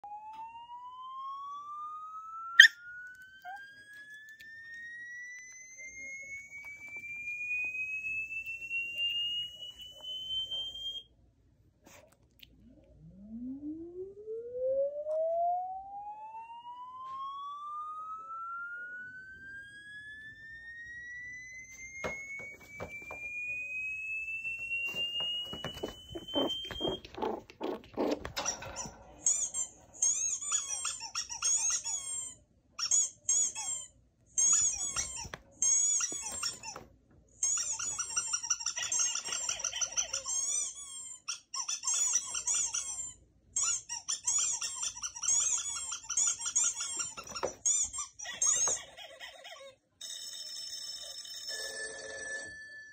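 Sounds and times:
high squeaky chirps: 0:02.6 - 0:02.8, 0:24.5 - 0:36.8, 0:37.4 - 0:51.6.

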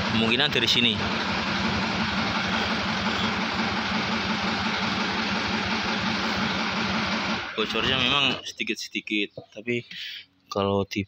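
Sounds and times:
engine idling: 0:00.0 - 0:08.6.

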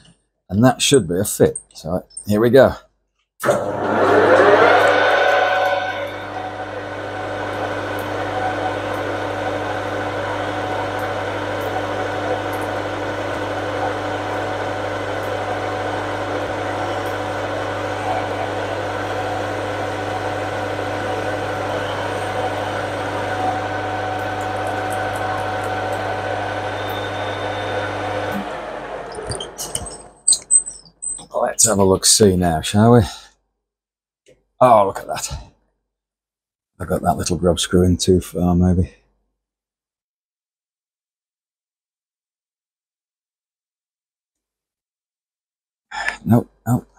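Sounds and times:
metal lathe running: 0:03.4 - 0:31.2.

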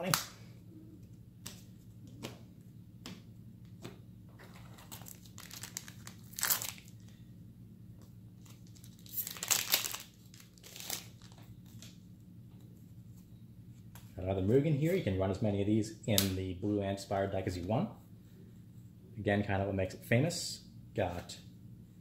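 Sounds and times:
foil wrapper crinkling and tearing: 0:04.8 - 0:07.1, 0:08.4 - 0:11.4.

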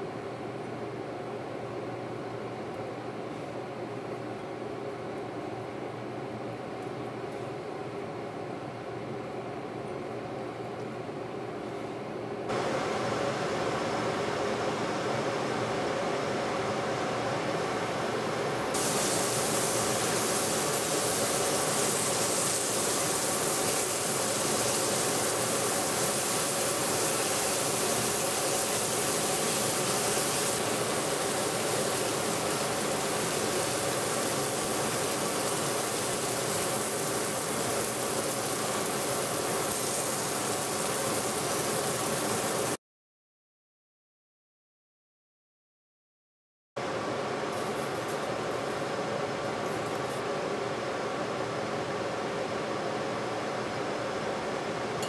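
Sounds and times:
fan hum: 0:00.0 - 0:42.8, 0:46.8 - 0:55.0
fish sizzling in hot oil: 0:18.8 - 0:42.8.

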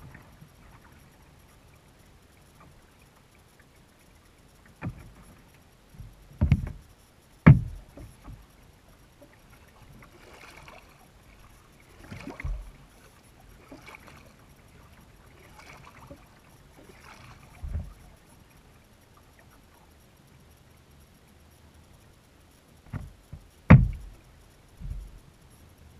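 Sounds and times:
paddle swishing through water: 0:00.0 - 0:20.1, 0:22.9 - 0:25.2
thumps on plastic hull: 0:06.0 - 0:06.8, 0:07.4 - 0:08.4, 0:12.3 - 0:12.7, 0:22.9 - 0:24.1.

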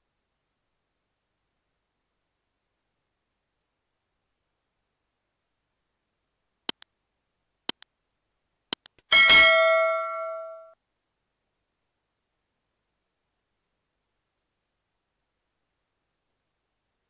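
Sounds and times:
double mouse clicks: 0:08.7 - 0:09.1
notification bell chime: 0:09.1 - 0:10.8.

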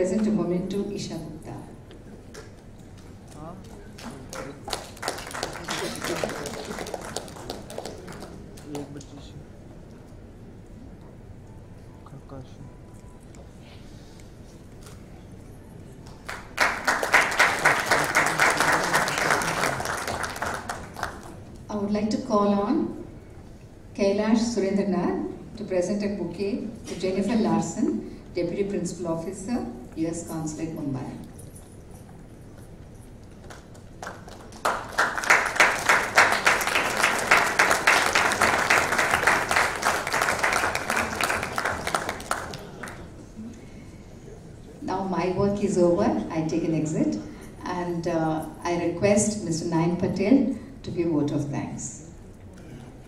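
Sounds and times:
audience applause: 0:03.9 - 0:08.9, 0:16.1 - 0:21.4, 0:33.4 - 0:43.2.

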